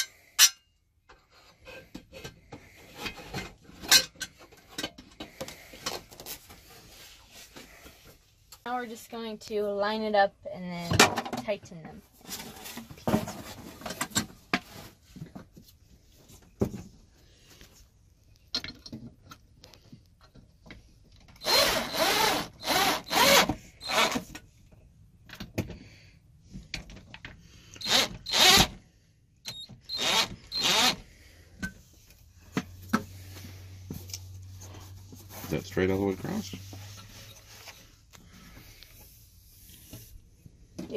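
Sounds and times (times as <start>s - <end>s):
cordless drill driving screws: 21.4s - 24.2s, 27.8s - 28.8s, 29.5s - 31.0s.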